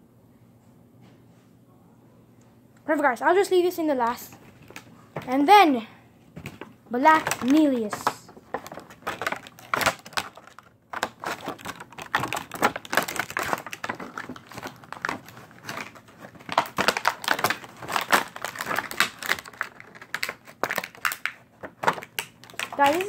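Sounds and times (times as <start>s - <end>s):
plastic packaging crinkling: 4.1s - 5.5s, 6.4s - 23.0s.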